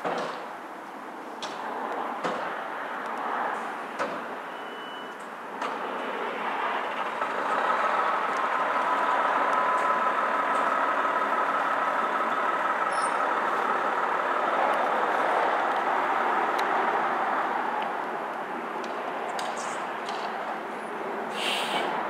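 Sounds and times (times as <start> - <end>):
truck engine idling: 5.3 - 21.9
short hiss: 21.3 - 21.9.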